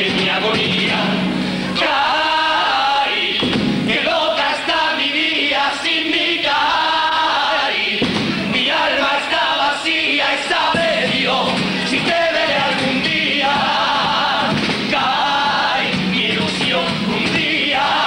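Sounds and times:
acoustic guitar: 0.0s - 4.2s, 8.0s - 9.5s, 10.7s - 18.0s
men singing in chorus: 0.0s - 18.0s.

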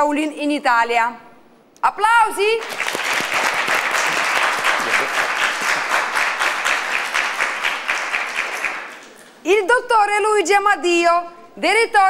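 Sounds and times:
audience applauding: 2.6s - 9.4s.

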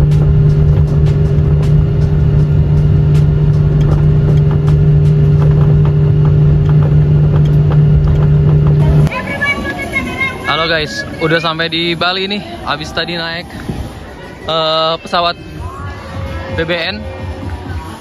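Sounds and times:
wheels rumbling on runway: 0.0s - 12.6s
jet engine hum: 0.0s - 16.1s.

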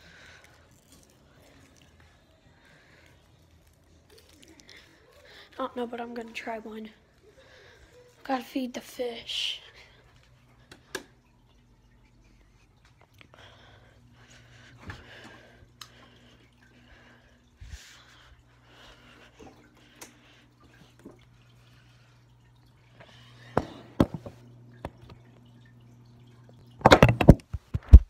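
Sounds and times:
water dripping and trickling: 0.0s - 5.3s, 9.8s - 26.8s
phone dropped clatter: 26.8s - 28.0s.

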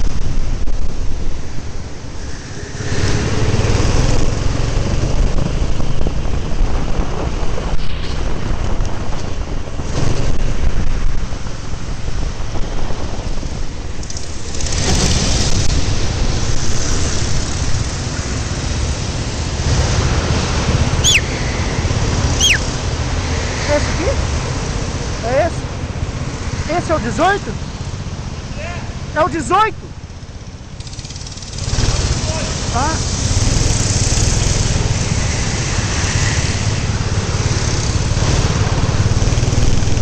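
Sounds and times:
wind buffeting the microphone: 3.2s - 28.2s
kart engine running: 12.0s - 28.4s, 30.0s - 40.0s
brief high squeals: 21.0s - 21.4s, 22.4s - 22.7s.

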